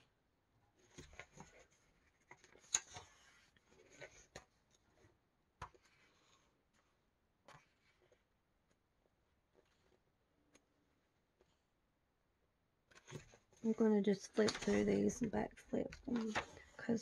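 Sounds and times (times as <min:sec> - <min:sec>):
paper pages turning: 0:00.8 - 0:08.8, 0:09.4 - 0:10.6, 0:12.9 - 0:17.0.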